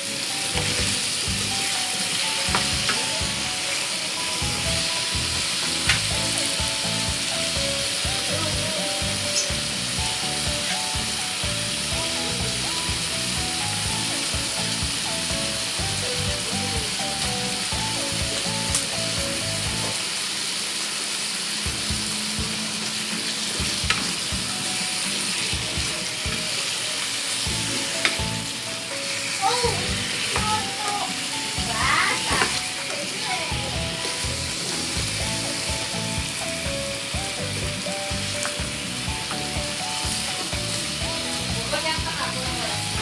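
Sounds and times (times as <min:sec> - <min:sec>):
potatoes sizzling in oil: 0:00.0 - 0:43.0.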